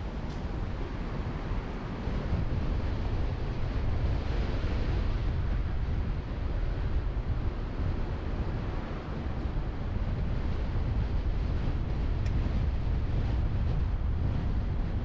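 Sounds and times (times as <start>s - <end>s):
car tyres rumbling on road: 0.0s - 15.0s
wind buffeting microphone: 0.0s - 15.0s.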